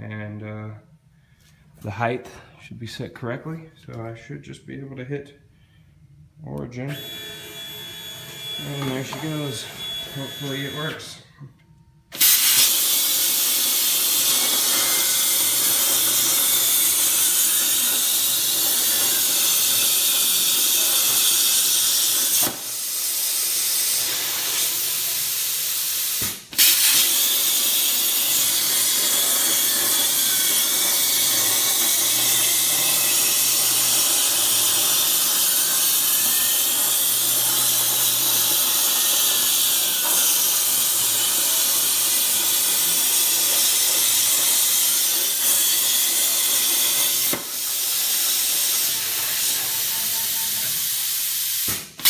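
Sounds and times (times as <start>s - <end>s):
plasma torch hissing: 8.6s - 11.1s, 12.2s - 52.0s
sharp crack of plasma arc: 12.1s - 49.9s.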